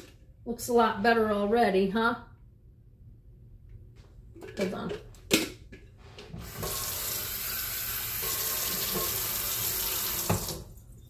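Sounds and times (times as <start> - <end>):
faucet water pouring into sink: 6.4 - 11.0.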